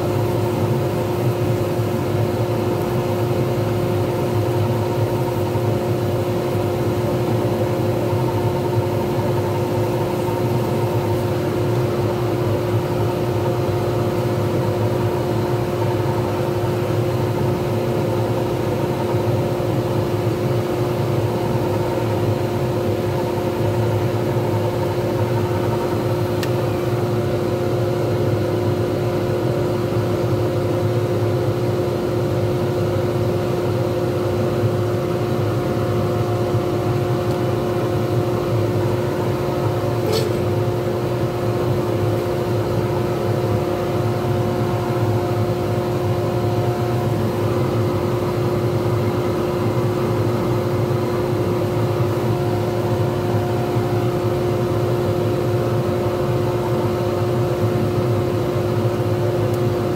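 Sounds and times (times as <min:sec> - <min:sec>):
lathe motor hum and whine: 0:00.0 - 0:59.9.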